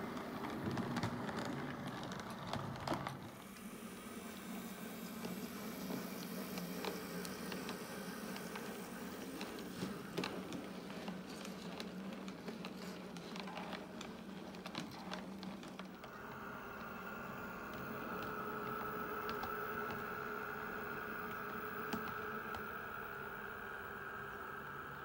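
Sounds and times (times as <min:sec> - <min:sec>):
model train motor hum: 0:03.3 - 0:15.3, 0:15.9 - 0:25.0
high motor whine: 0:16.0 - 0:25.0.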